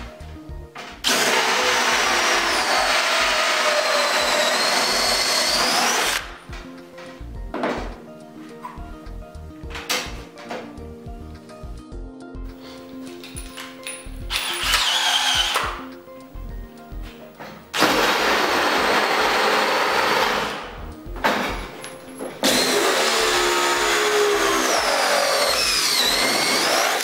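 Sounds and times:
background music with beat: 0.0s - 0.9s, 6.2s - 14.7s, 15.3s - 17.8s, 20.7s - 22.7s
cordless drill running: 1.0s - 6.3s, 14.3s - 15.7s, 17.8s - 20.6s, 22.4s - 27.0s.

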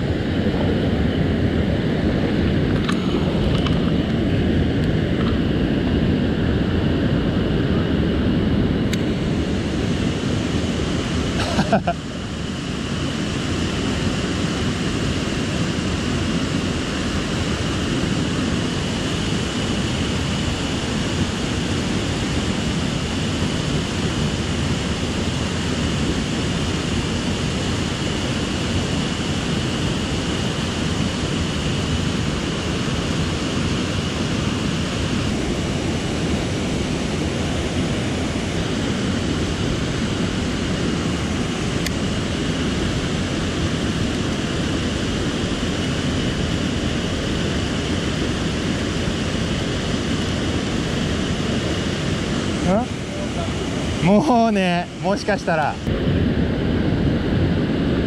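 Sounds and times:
stream water rushing: 48.0s - 55.8s.

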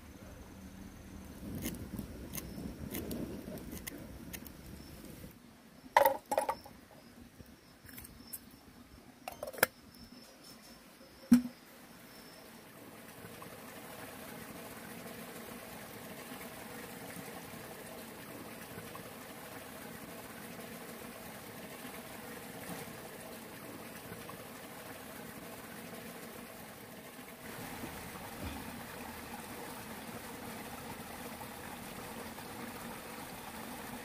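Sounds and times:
stream water flowing: 12.4s - 34.0s.

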